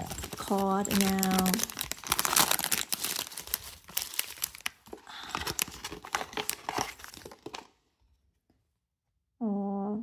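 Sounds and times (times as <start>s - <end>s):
packaging crinkling and crackling: 0.0s - 7.8s.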